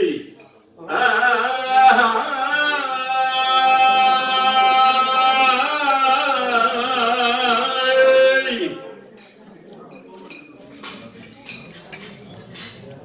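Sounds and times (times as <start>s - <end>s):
man chanting into microphone: 0.0s - 9.0s.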